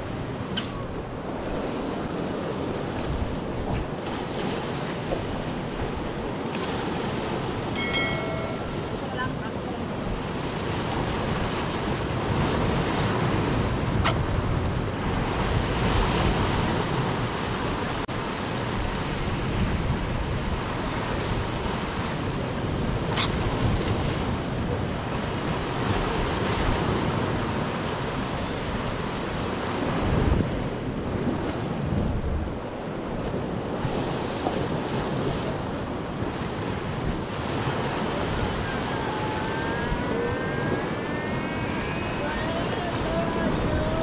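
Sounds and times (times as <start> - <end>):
waves breaking against rocks: 0.0 - 44.0
wind rumbling on microphone: 0.0 - 44.0
sharp clicks: 6.3 - 6.6, 7.4 - 7.8.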